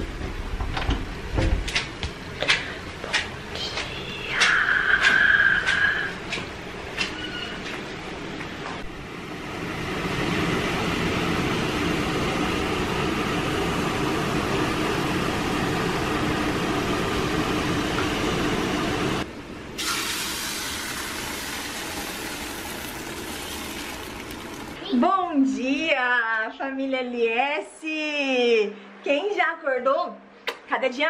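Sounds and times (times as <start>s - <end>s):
batter sizzling in frying pan: 19.8s - 24.8s
hot water and steam hissing: 19.8s - 24.8s.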